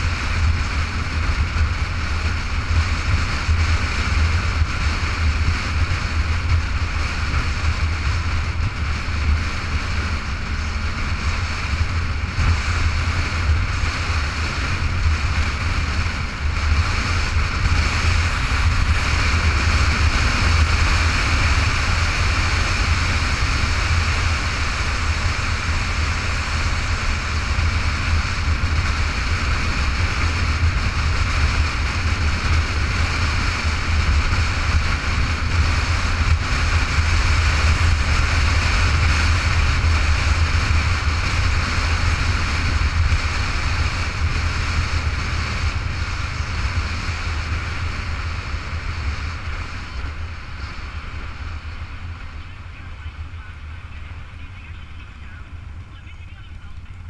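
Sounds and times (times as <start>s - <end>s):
motorcycle riding: 0.0s - 57.0s
wind buffeting microphone: 0.0s - 57.0s.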